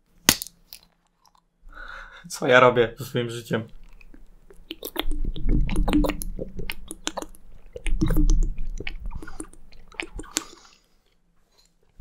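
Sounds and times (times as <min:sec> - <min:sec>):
wet mouth sounds with water: 0:03.7 - 0:10.8
wet smacks and clicks: 0:03.7 - 0:10.8.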